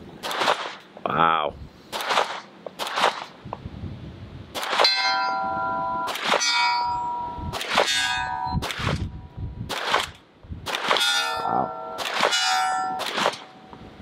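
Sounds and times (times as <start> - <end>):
pistol shots: 0.2 - 0.8, 1.9 - 3.4, 4.5 - 5.0, 6.0 - 6.6, 7.5 - 9.1, 9.7 - 13.6
steel target ringing: 4.8 - 8.7, 11.0 - 13.8.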